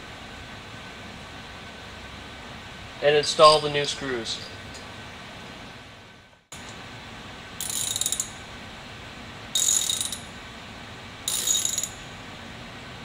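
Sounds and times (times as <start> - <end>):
ratchet wrench clicking: 7.6 - 8.4, 9.6 - 10.3, 11.3 - 12.0.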